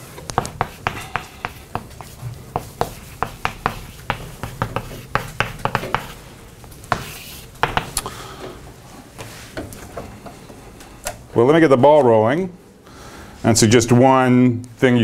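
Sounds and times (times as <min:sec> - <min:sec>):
chalk writing on blackboard: 0:00.3 - 0:08.0.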